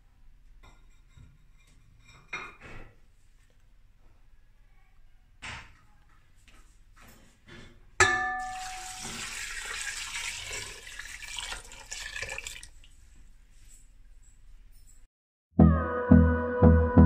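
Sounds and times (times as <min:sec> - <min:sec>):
glass clinking on metal: 0:08.0 - 0:09.3
water pouring into metal pot: 0:08.4 - 0:12.9.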